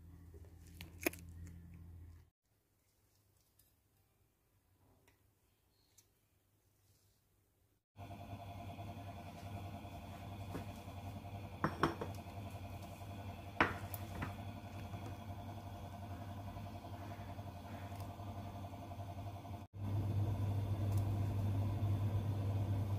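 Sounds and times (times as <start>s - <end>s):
gas stove burner hissing: 8.4s - 22.9s.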